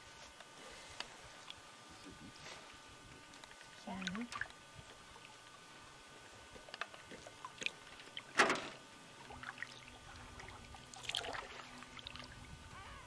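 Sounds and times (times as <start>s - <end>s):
paddle splashing in water: 9.3s - 12.3s.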